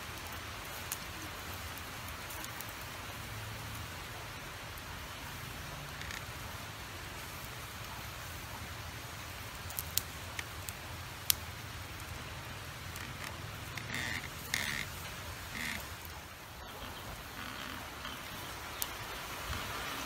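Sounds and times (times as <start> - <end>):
duck-like calls: 13.0 - 18.4.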